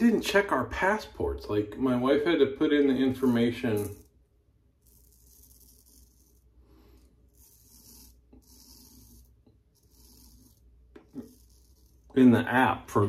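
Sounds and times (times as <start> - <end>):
razor scraping stubble: 3.2 - 4.2, 4.8 - 12.6.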